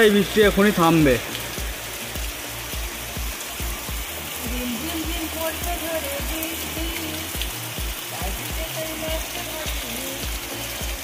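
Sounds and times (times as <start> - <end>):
heavy rain pouring: 0.0 - 11.0
background music with low beat: 0.4 - 4.4.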